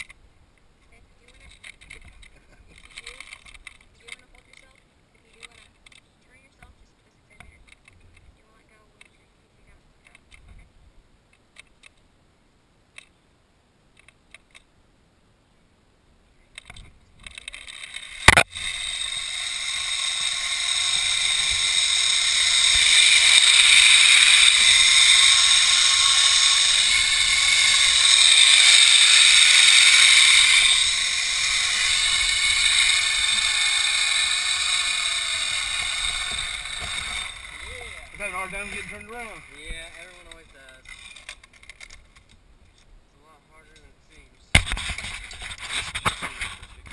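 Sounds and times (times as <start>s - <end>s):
pulley wheels whirring on cable: 16.6s - 40.1s, 40.8s - 42.2s.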